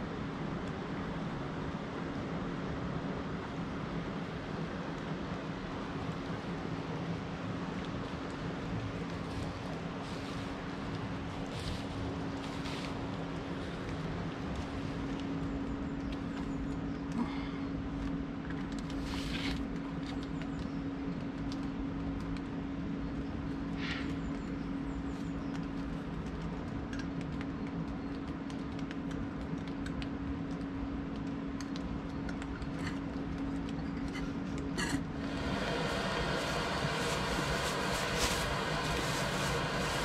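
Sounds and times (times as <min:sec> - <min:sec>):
steady low hum: 0:00.0 - 0:40.0
river pouring over a weir: 0:35.1 - 0:40.0.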